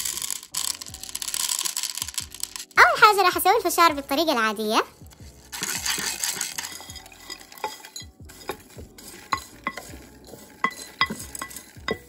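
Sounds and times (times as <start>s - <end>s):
popcorn sizzling in oil: 0.0s - 12.0s
spatula knocking and clinking: 5.6s - 12.0s.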